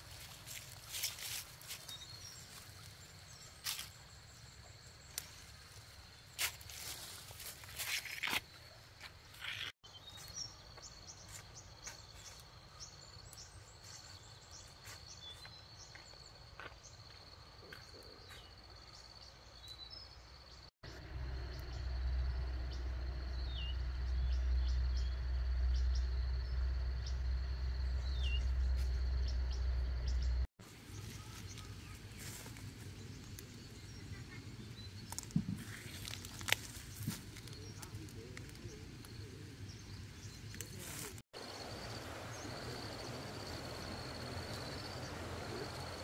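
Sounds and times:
bird chirps: 9.4 - 38.0
high insect drone: 20.9 - 30.4, 41.4 - 46.0
low rumble: 20.9 - 30.5.

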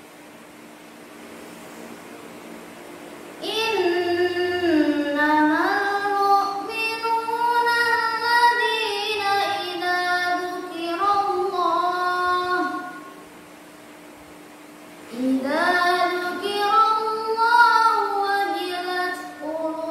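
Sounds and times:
girl reciting melodically: 3.4 - 13.2, 15.1 - 19.9.

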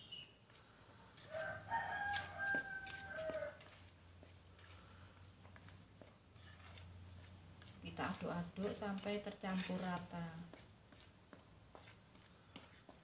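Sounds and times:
rooster crowing: 1.2 - 3.8.

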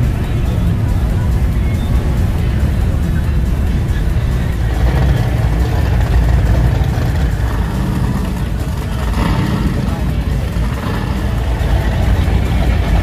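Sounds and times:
powerboat engines idling: 0.0 - 13.0.

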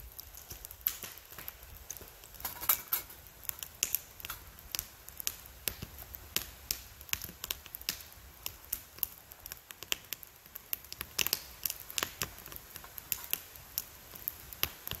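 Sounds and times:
wood fire crackling in metal stove: 0.0 - 15.0.

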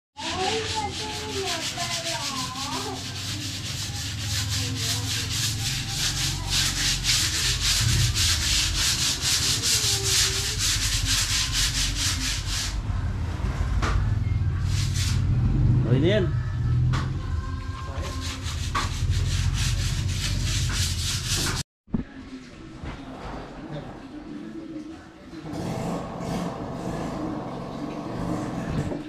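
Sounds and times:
hand sanding a wall: 0.2 - 12.8, 18.0 - 21.6.

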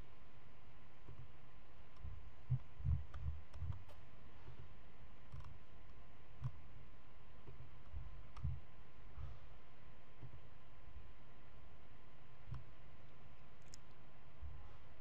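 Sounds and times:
low background hum: 0.0 - 15.0
computer mouse clicks: 1.9 - 4.0, 5.3 - 6.6, 12.5 - 12.7, 13.6 - 14.0.

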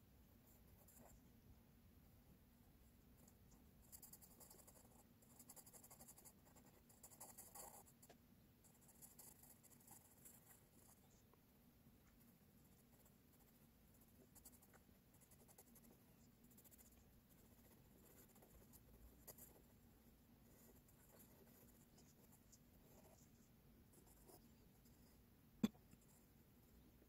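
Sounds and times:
pencil scratching on paper: 3.2 - 11.2, 12.6 - 19.8, 20.4 - 25.2.

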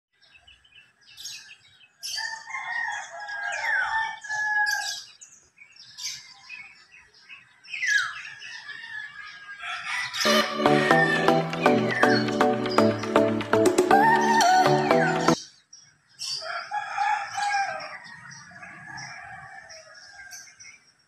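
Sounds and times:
small birds chirping: 0.1 - 16.6
rooster crowing: 2.2 - 5.0, 8.4 - 11.4, 16.4 - 20.5.

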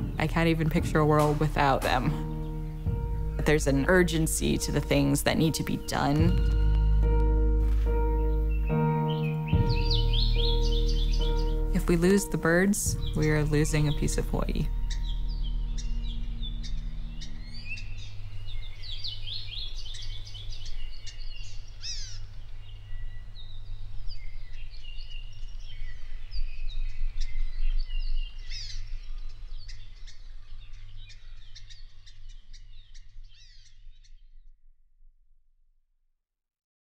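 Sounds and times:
forest birds chirping and singing: 0.0 - 34.4
steady low hum: 9.6 - 29.6.

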